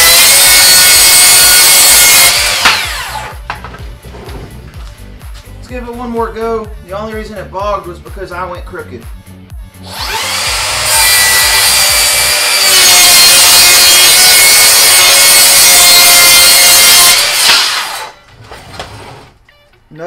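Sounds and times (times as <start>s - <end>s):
circular saw cutting wood: 0.0s - 3.4s, 9.8s - 18.2s.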